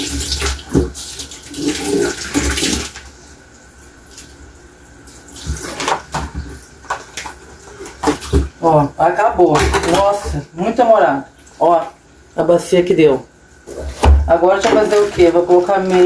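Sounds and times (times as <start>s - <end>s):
tap water splashing into sink: 0.0s - 3.1s, 5.4s - 8.6s, 9.3s - 10.4s.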